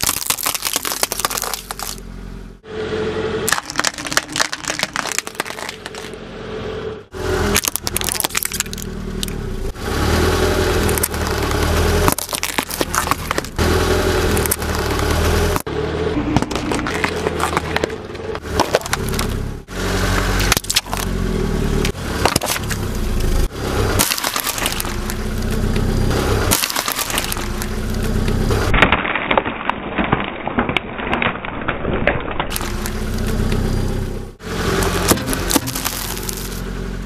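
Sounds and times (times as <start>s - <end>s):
tyre crushing objects: 0.0s - 2.1s, 3.5s - 6.2s, 7.4s - 9.4s, 10.8s - 21.2s, 21.8s - 33.5s, 34.6s - 36.7s
car engine running: 0.0s - 28.8s, 32.4s - 37.0s.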